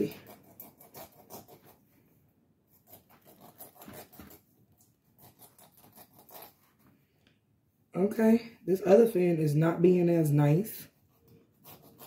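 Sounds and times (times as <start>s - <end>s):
knife scratching through fish fins: 0.0s - 1.8s, 2.7s - 4.5s, 5.1s - 6.8s, 11.1s - 12.0s.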